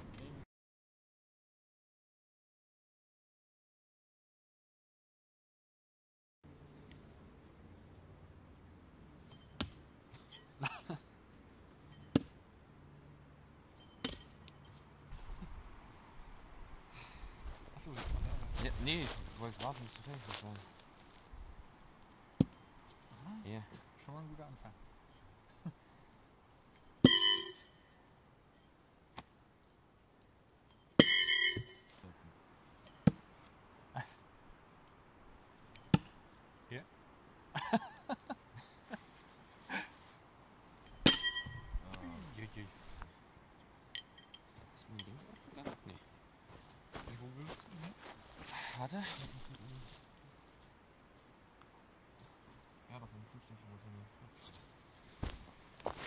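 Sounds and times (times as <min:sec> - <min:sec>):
metallic ringing: 0:09.2 - 0:09.6, 0:11.8 - 0:12.1, 0:13.7 - 0:15.1, 0:26.7 - 0:28.8, 0:30.7 - 0:32.0, 0:40.8 - 0:41.8, 0:43.9 - 0:45.6
knives striking wooden target: 0:13.8 - 0:14.5
thrown knives striking target: 0:41.1 - 0:41.6.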